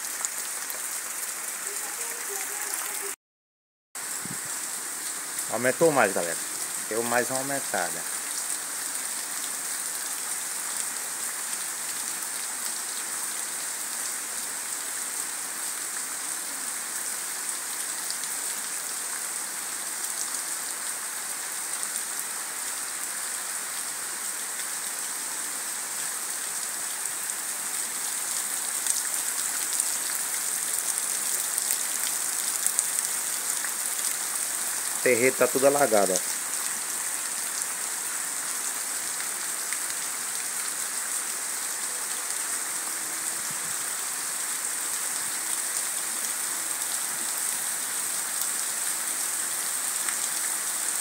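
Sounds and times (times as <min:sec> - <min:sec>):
heavy rain falling on trees: 0:00.0 - 0:03.2, 0:04.0 - 0:51.0.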